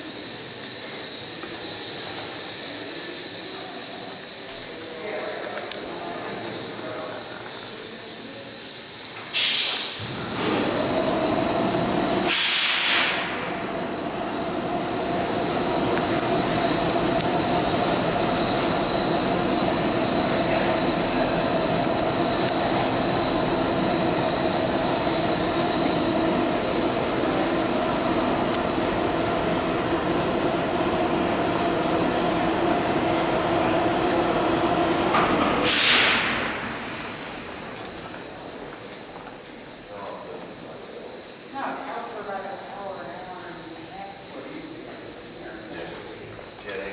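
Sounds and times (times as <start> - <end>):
subway train rumble with whine: 0.0 - 46.9
compressed air hiss: 9.2 - 11.2, 12.0 - 13.6, 35.5 - 37.4.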